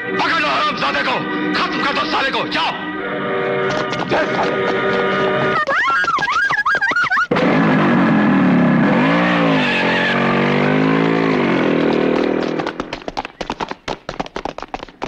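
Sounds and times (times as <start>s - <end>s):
motorcycle engine revving: 7.3s - 13.0s
sharp hits and knocks: 11.7s - 15.0s.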